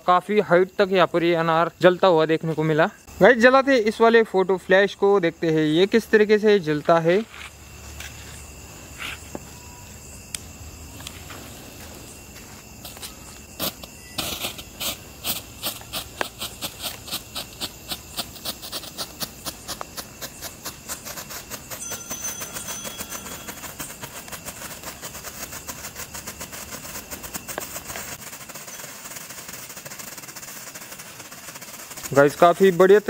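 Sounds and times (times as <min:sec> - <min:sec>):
strobe firework hissing and popping: 0:08.8 - 0:22.4, 0:23.0 - 0:33.0.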